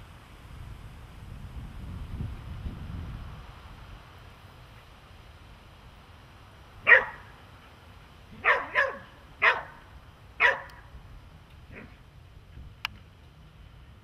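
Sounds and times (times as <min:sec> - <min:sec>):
dog barking: 0:06.9 - 0:07.3, 0:08.4 - 0:09.8, 0:10.4 - 0:10.8, 0:11.7 - 0:12.0.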